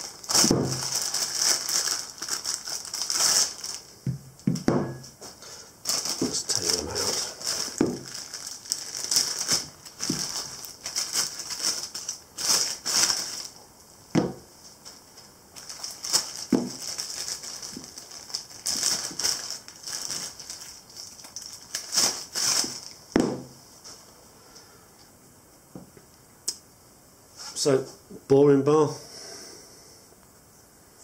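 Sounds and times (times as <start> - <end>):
plastic bags crinkling: 0.0 - 4.7, 5.4 - 13.6, 14.8 - 23.5
heavy objects knocking on mat: 0.4 - 0.8, 4.0 - 5.1, 7.8 - 8.1, 14.2 - 14.4, 23.2 - 23.5.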